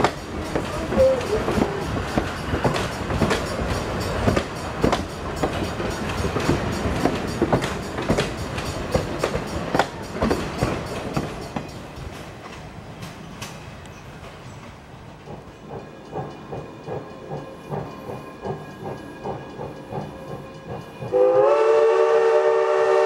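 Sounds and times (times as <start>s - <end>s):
train rumble: 0.0s - 23.0s
train wheels clacking over rail joints: 0.0s - 23.0s.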